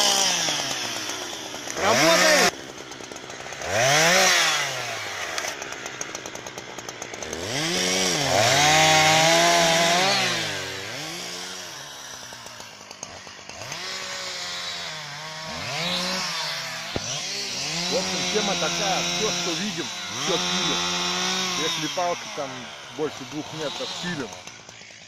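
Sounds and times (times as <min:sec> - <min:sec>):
chainsaw revving and idling: 0:00.0 - 0:25.0.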